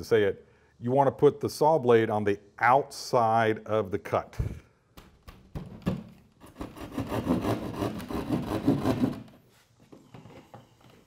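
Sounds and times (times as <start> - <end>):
hand saw cutting drywall: 6.4 - 9.4.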